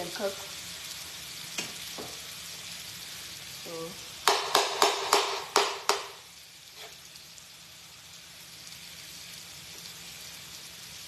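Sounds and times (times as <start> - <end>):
vegetables sizzling on a griddle: 0.0 - 11.0.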